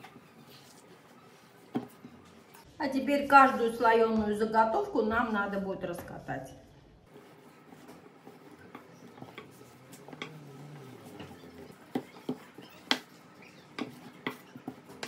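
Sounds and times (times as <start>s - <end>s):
rolling pin rolling dough: 0.0s - 2.6s, 7.1s - 15.0s.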